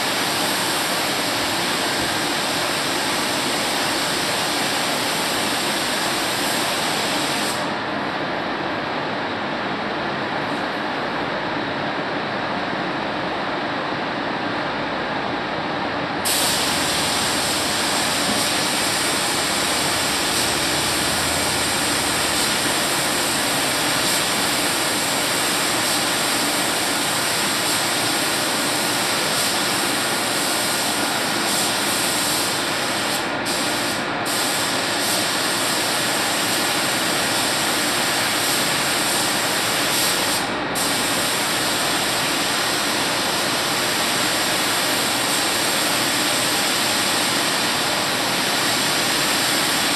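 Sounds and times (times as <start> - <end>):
paint spray gun hissing: 16.2 - 43.4.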